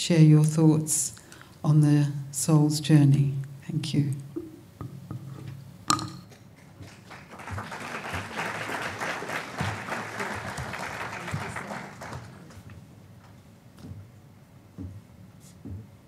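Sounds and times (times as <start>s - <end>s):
audience applauding: 6.6s - 12.7s.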